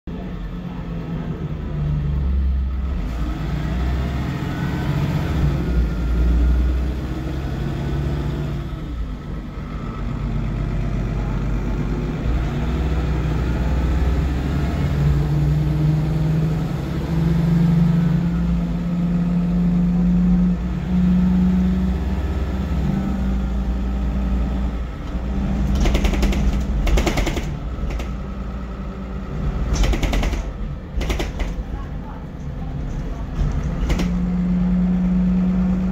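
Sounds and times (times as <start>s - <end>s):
bus diesel engine running: 0.1s - 35.9s
fast rattling: 25.6s - 28.3s, 29.7s - 31.9s.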